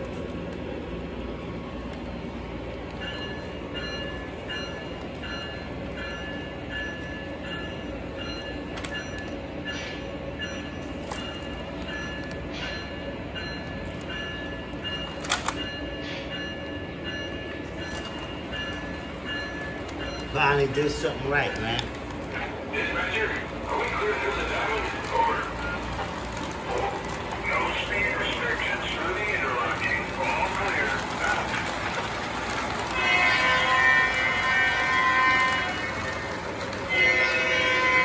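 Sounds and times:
model train motor and wheels rumbling: 17.9 - 38.0.

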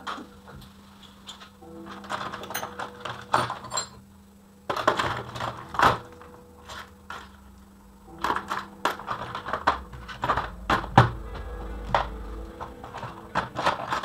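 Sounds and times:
metal tools clinking on workbench: 1.0 - 4.0.

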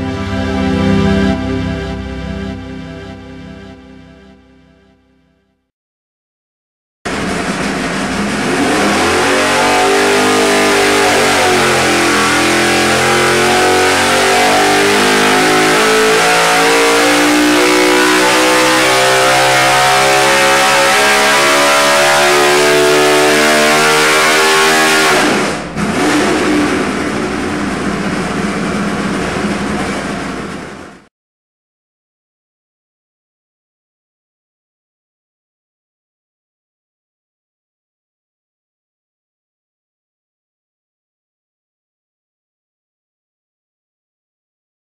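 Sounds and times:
race engine revving: 7.1 - 30.9.

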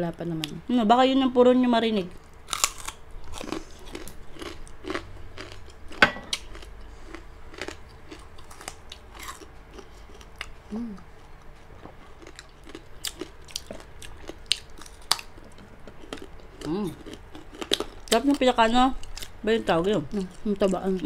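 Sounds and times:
crunchy food being chewed: 2.2 - 18.4.

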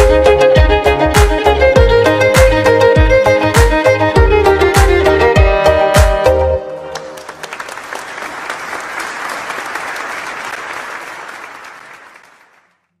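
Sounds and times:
song ending: 0.0 - 7.2
audience applauding: 6.8 - 13.0.

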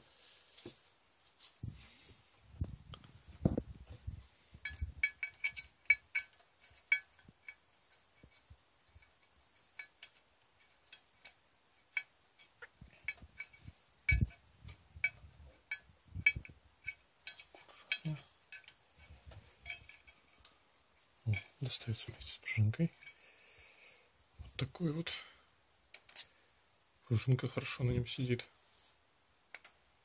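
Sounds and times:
metal parts clicking and clinking: 4.6 - 20.6, 25.9 - 26.3.

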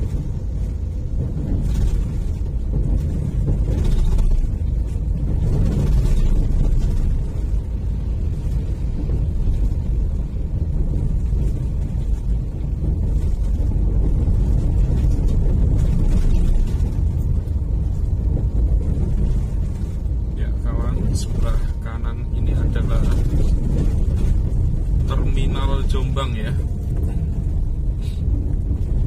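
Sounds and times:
vehicle road rumble: 0.0 - 29.0.

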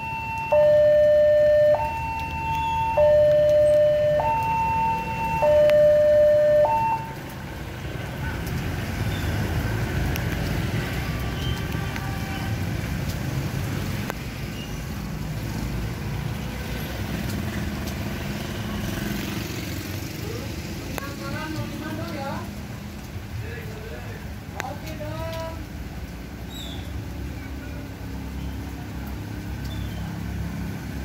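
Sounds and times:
two-tone warning siren: 0.0 - 7.2
motorbikes and traffic rumble: 0.0 - 31.0.

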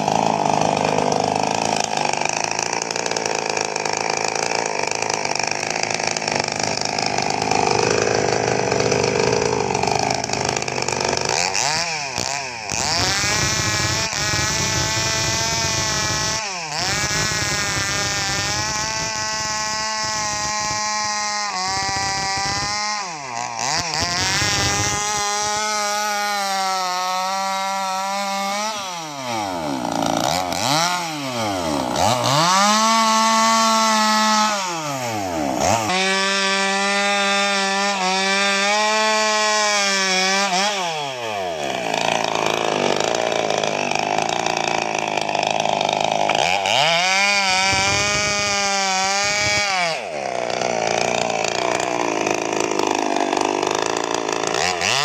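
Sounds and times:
chainsaw cutting logs: 0.0 - 55.0.

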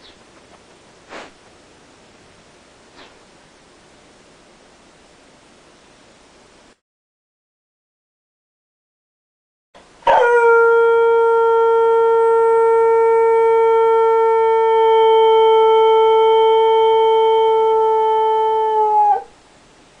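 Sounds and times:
dog howling: 10.0 - 19.4.

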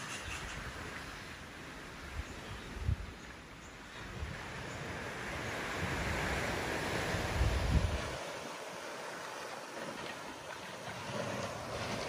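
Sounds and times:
surf hissing on shore: 0.0 - 12.0
wind buffeting microphone: 2.1 - 3.2, 4.0 - 8.3.

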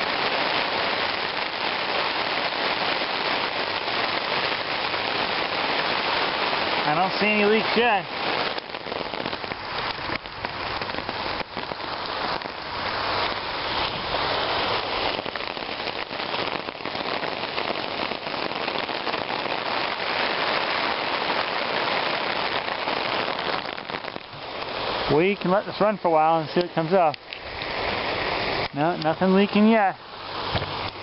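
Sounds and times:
hose spray hissing on tarp: 0.0 - 31.0.

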